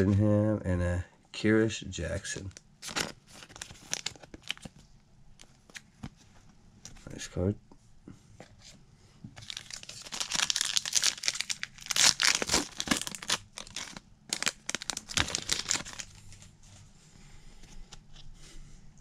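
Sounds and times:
foil wrapper crackling and ripping: 0:02.8 - 0:04.7, 0:09.4 - 0:16.4.

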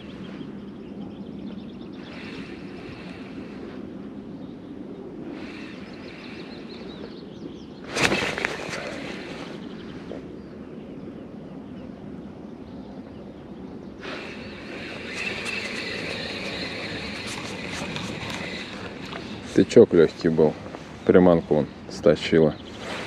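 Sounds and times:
fishing line rushing out: 0:02.0 - 0:04.2, 0:05.2 - 0:06.8, 0:07.8 - 0:10.2, 0:14.0 - 0:20.5
spinning reel whirring and ticking: 0:14.1 - 0:19.6.

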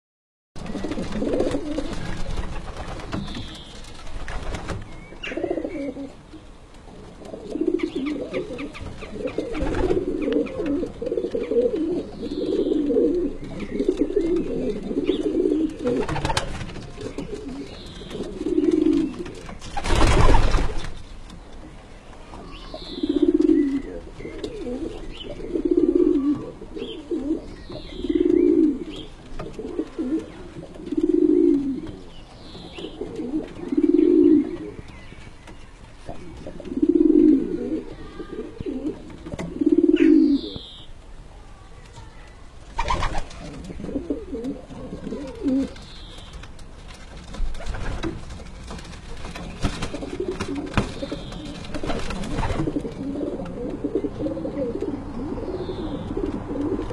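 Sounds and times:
pigeons cooing: 0:00.6 - 0:02.6, 0:05.2 - 0:20.5, 0:22.4 - 0:35.0, 0:36.0 - 0:40.8, 0:42.8 - 0:46.0, 0:49.4 - 0:56.9.

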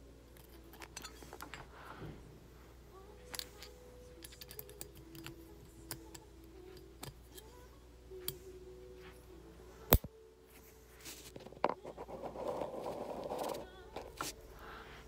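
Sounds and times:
small metal clicks of pistol parts: 0:03.3 - 0:06.2.

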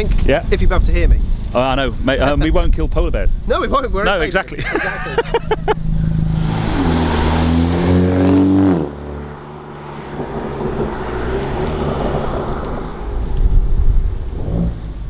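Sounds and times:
car exhaust pulling away: 0:05.5 - 0:15.0.

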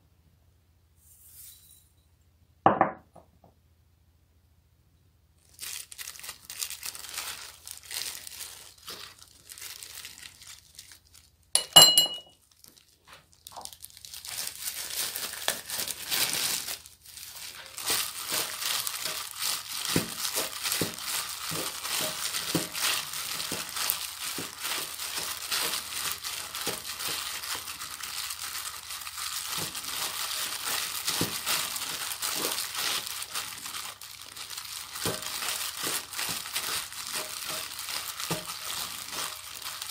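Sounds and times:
plastic glove crinkling: 0:05.4 - 0:39.9
short ringing clink: 0:11.6 - 0:12.3.

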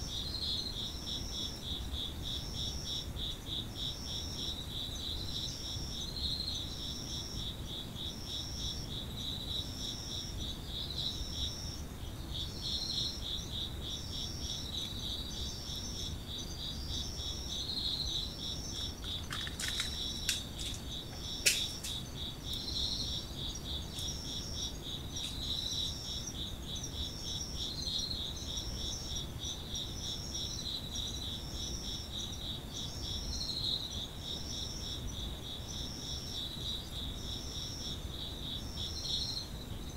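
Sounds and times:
insects trilling: 0:00.0 - 0:39.9
short high insect call: 0:16.8 - 0:26.2
sharp clicks: 0:19.1 - 0:22.0.

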